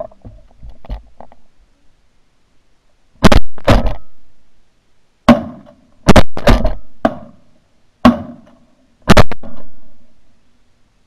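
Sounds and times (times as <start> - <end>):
shotgun blasts: 3.2 - 4.1, 5.3 - 7.4, 8.0 - 8.4, 9.0 - 9.7.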